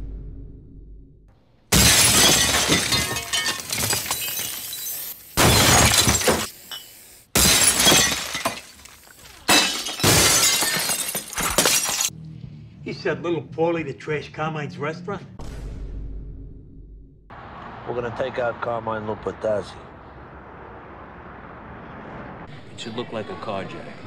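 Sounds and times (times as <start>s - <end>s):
glass smashing: 1.7s - 12.1s.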